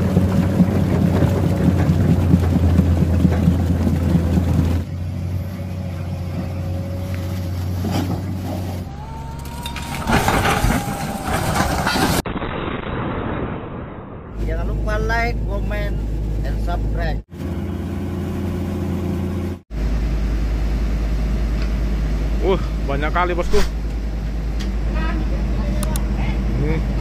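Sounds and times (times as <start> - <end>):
excavator diesel engine running: 0.0 - 11.9
explosion blasts: 9.9 - 14.7.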